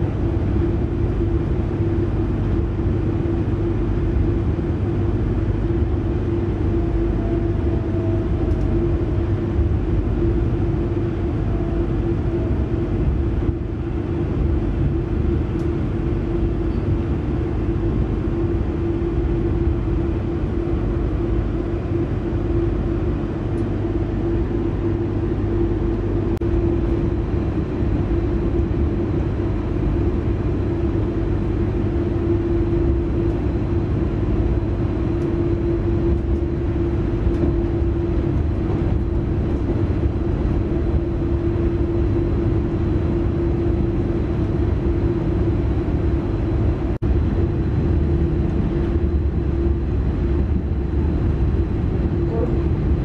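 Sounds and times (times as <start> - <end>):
constant train hum: 0.0 - 53.0
train wheels rumbling on track: 5.5 - 17.0, 30.6 - 43.4.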